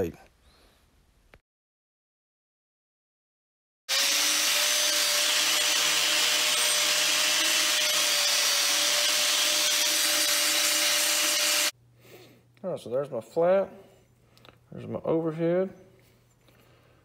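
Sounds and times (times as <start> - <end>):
angle grinder grinding steel: 3.9 - 11.8.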